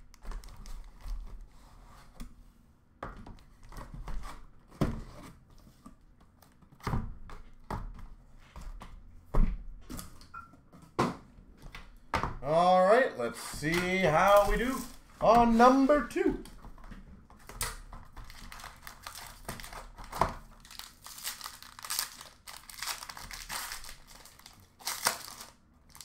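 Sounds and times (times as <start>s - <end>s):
cardboard flaps rustling: 13.5s - 26.0s.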